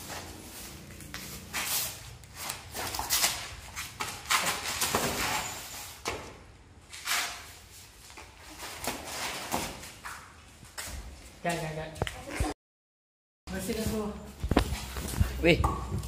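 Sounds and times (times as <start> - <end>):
footsteps scuffing on cardboard: 13.5 - 15.4.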